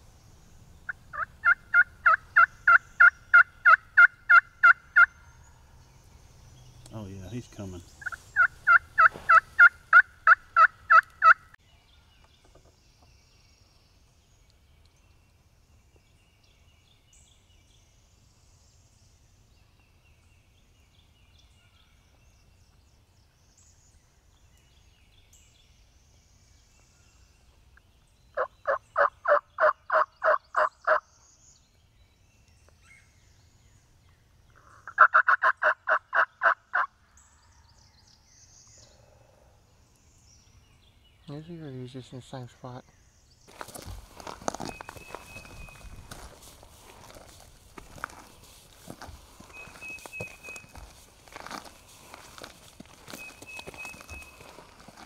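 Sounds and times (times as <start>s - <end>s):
wild turkey calling: 0.9s - 5.7s, 7.3s - 11.6s, 28.4s - 31.1s, 34.6s - 37.0s, 43.5s - 55.0s.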